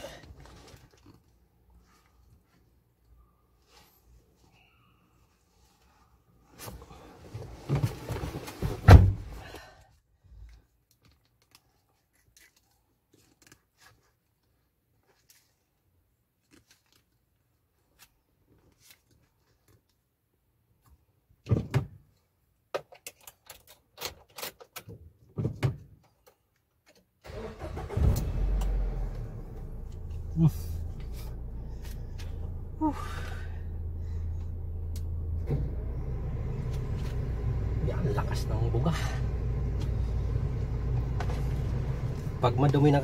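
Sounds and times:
car door thumping shut: 0:08.8 - 0:09.2
car engine starting and running: 0:27.2 - 0:43.0.

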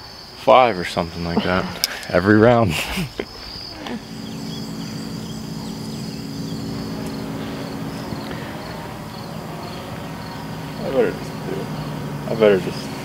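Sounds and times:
insects chirping: 0:00.0 - 0:13.0
steady low hum: 0:01.4 - 0:13.0.

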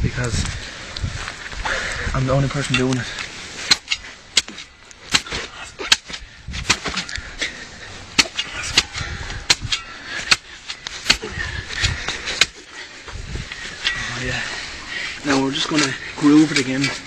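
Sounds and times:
spade chopping into wet soil: 0:03.7 - 0:07.1, 0:08.2 - 0:12.7.

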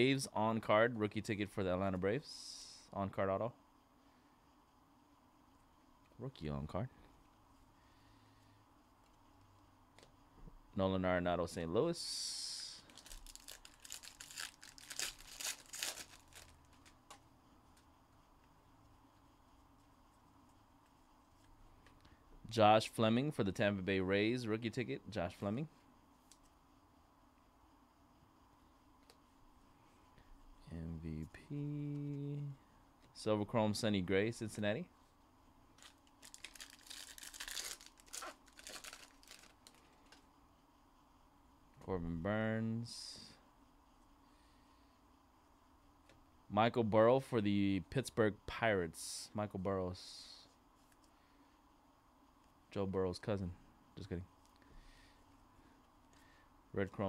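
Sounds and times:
foil wrapper tearing and crinkling: 0:12.9 - 0:16.9, 0:35.8 - 0:40.2.

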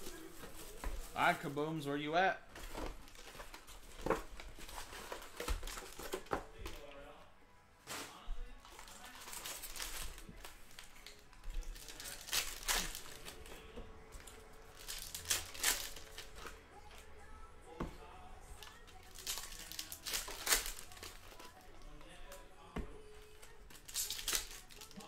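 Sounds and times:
wrapper ripping: 0:07.8 - 0:17.1, 0:18.6 - 0:22.4, 0:23.4 - 0:25.0
plastic wrapper crinkling: 0:07.9 - 0:17.1, 0:18.6 - 0:22.4, 0:23.4 - 0:25.0.

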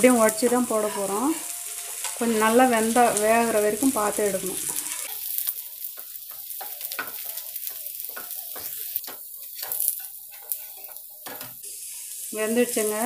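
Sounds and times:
flatbread sizzling in oil: 0:00.0 - 0:13.0
spatula scraping and tapping pan: 0:01.5 - 0:02.4, 0:04.8 - 0:11.6.

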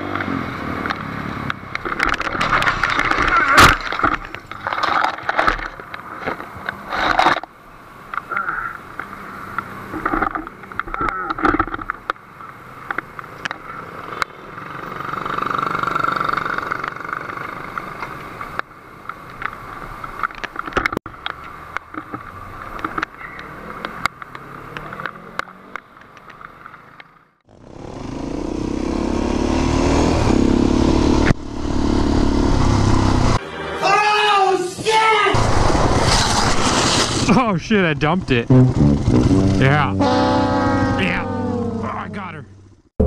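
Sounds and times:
motorcycle scraping and knocking: 0:01.7 - 0:07.5
vehicle passing: 0:13.8 - 0:17.7, 0:27.6 - 0:34.5, 0:38.1 - 0:42.9
vehicle engine running: 0:38.2 - 0:43.0.

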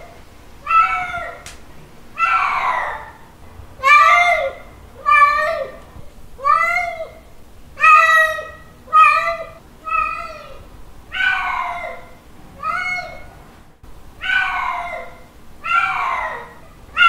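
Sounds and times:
cat meowing: 0:00.6 - 0:01.4, 0:02.2 - 0:03.2, 0:03.8 - 0:05.8, 0:06.4 - 0:07.2, 0:07.8 - 0:13.3, 0:14.2 - 0:17.0.

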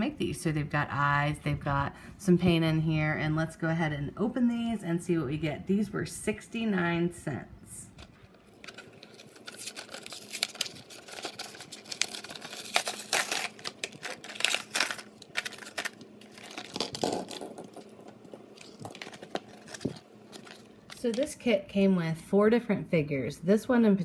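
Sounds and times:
plastic blister pack crinkling: 0:08.0 - 0:21.4.

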